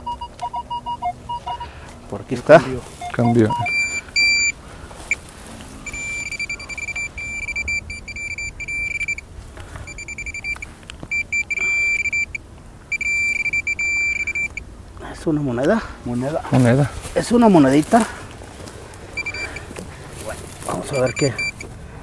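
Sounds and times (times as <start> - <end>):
metal detector pinpointer beeping: 0.0 - 1.7, 3.0 - 5.2, 5.8 - 9.2, 9.9 - 14.6, 19.2 - 19.7, 20.7 - 21.7.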